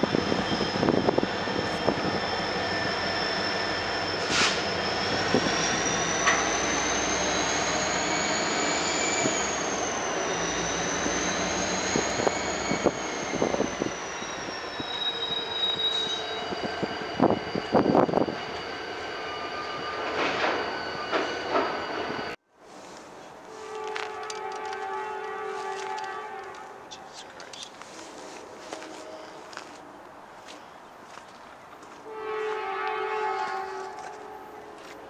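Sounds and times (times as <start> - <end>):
train wheels squealing: 0.0 - 22.4
rolling train noise: 0.0 - 35.0.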